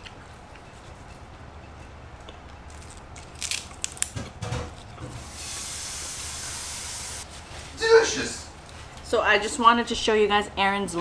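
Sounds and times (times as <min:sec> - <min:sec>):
crunchy vegetables being chewed: 0:00.0 - 0:05.0
steady hiss: 0:05.1 - 0:08.2.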